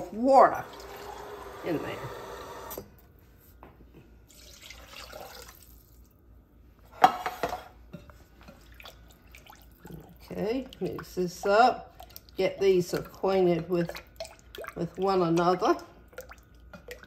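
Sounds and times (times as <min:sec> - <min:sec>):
water pouring into a glass cup: 0:04.3 - 0:06.1.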